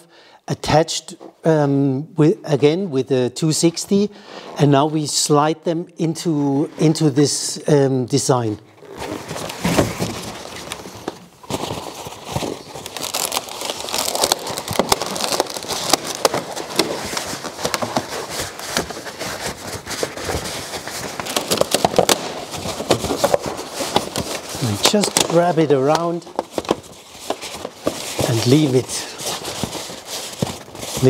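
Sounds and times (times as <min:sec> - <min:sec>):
balloons squeaking and rubbing: 0:08.6 - 0:31.0
foil balloon crinkling: 0:08.7 - 0:31.0.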